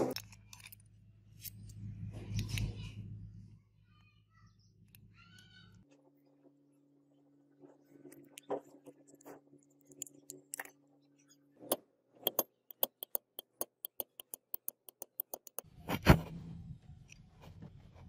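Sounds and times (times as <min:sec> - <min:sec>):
metal tools clicking: 0:12.2 - 0:15.6.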